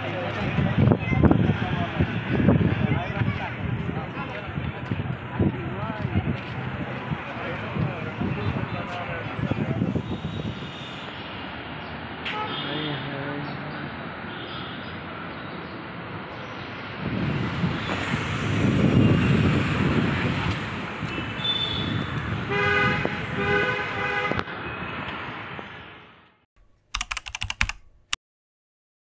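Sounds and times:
vehicles passing: 0.0s - 26.4s
car horn tooting: 12.3s - 13.0s, 21.1s - 24.5s
sharp clicks: 26.6s - 28.2s.

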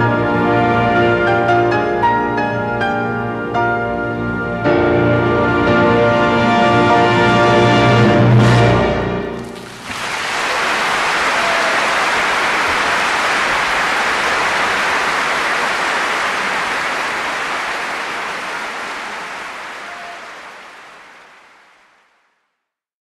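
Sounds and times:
audience applauding: 9.3s - 22.4s.

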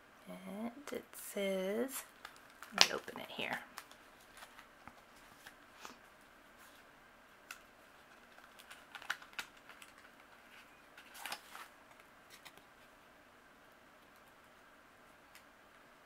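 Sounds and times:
package clicks and rustles: 2.1s - 3.1s, 3.7s - 5.6s, 7.5s - 12.9s.

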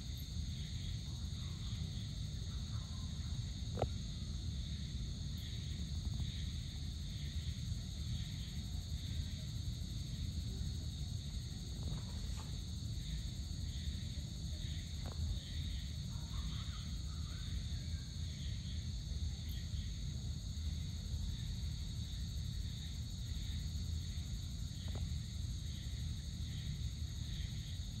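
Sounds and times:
crickets trilling: 0.0s - 28.0s
soft pulsing insect call: 0.0s - 28.0s.

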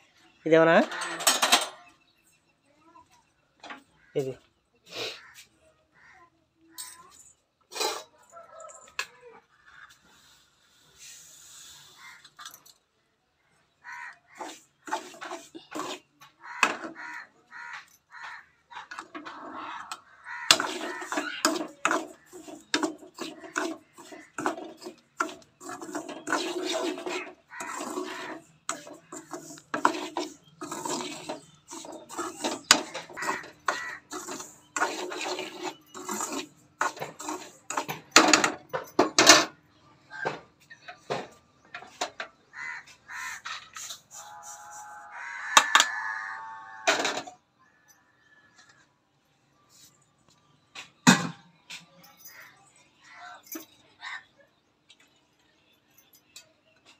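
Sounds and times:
spoon scraping a metal pan: 14.3s - 17.0s, 18.8s - 39.5s.

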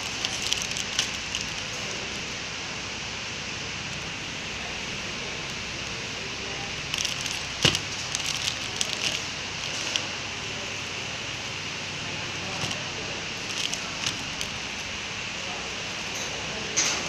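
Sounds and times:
plastic film crinkling: 0.0s - 2.2s, 6.4s - 10.6s, 12.3s - 15.1s.

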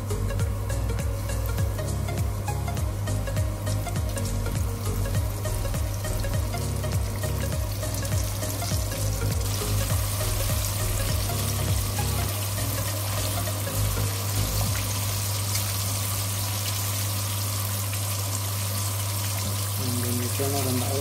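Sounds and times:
chicken wings deep-frying: 0.0s - 21.0s.

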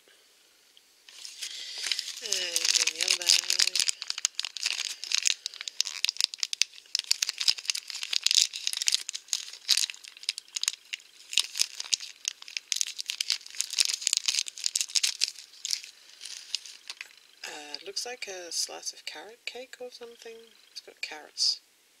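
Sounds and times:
plastic bag crinkling: 1.1s - 17.8s.

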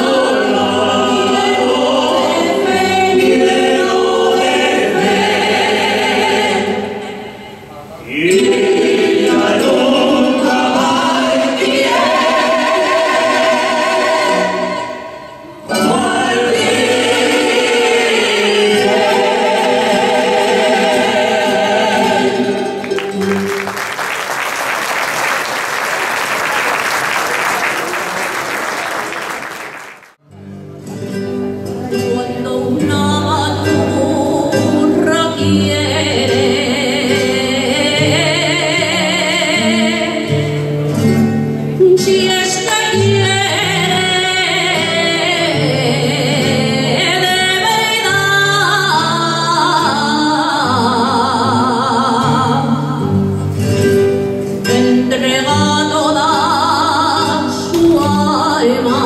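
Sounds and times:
group singing: 0.0s - 23.4s, 32.6s - 40.6s, 41.9s - 53.2s, 54.6s - 59.0s
woman singing into microphone: 15.7s - 22.7s, 32.0s - 40.6s, 41.8s - 53.2s, 54.6s - 59.0s
audience applause: 22.8s - 30.2s.

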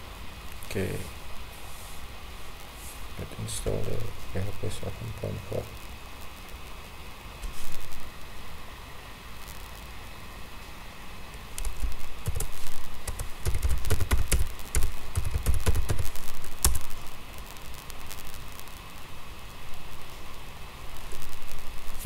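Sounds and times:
computer keyboard typing: 11.6s - 16.8s.

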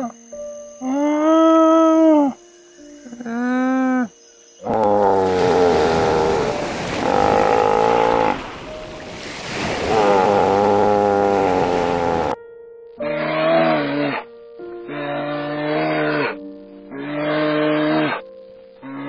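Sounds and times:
alpaca humming: 3.2s - 8.7s, 9.8s - 12.4s
surf rushing: 5.2s - 12.4s.

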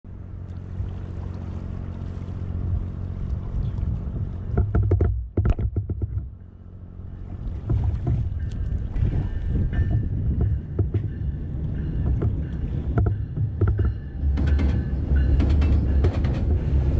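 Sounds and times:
low hum: 0.0s - 16.9s
water sloshing against kayak hull: 0.3s - 11.3s
wind on microphone: 2.5s - 6.4s, 7.2s - 16.9s.

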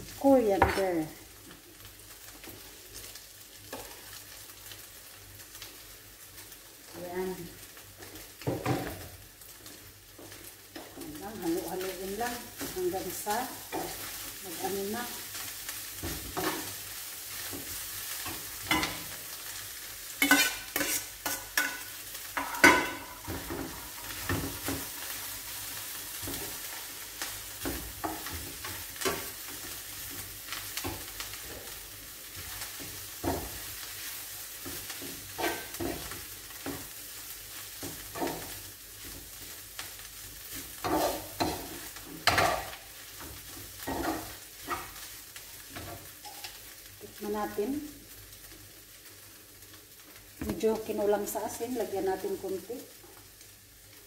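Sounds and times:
meat and onion sizzling in pan: 0.0s - 54.0s
spatula scraping and knocking pan: 16.0s - 16.8s, 17.4s - 19.1s, 20.2s - 25.2s, 34.6s - 37.0s, 40.5s - 46.6s.

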